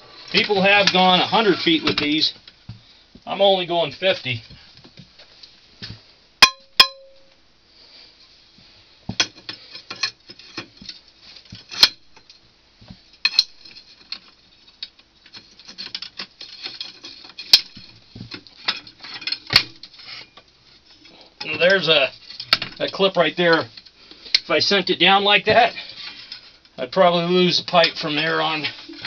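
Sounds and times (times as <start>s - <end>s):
sharp metal clanks: 6.4s - 7.4s
metal rods clinking and rattling: 13.2s - 20.3s.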